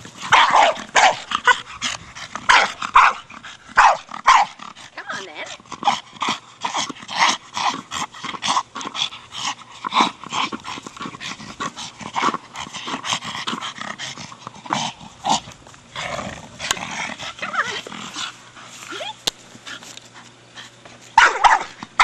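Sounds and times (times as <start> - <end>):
dog growling and huffing: 0.0 - 22.0.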